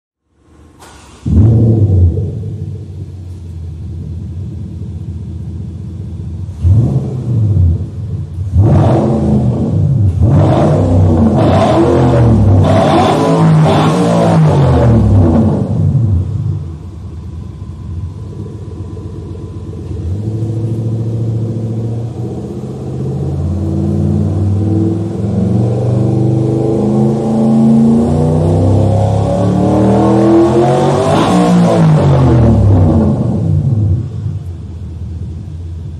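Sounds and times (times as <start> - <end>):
car engine revving: 0.5 - 35.9.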